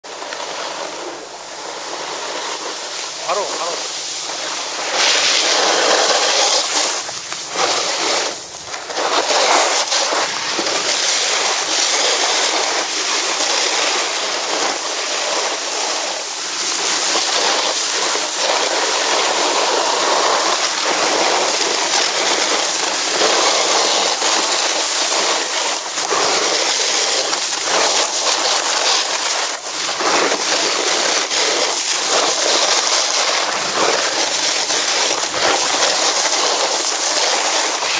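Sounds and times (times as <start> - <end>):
snowboard scraping on snow: 0.0 - 37.9.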